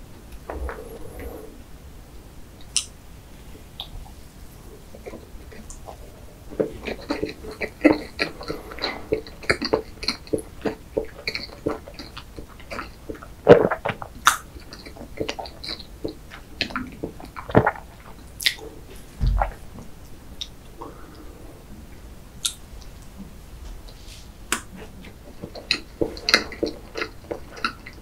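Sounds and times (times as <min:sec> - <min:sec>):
close chewing with wet clicks: 0:05.0 - 0:18.7, 0:22.4 - 0:23.1, 0:24.5 - 0:28.0.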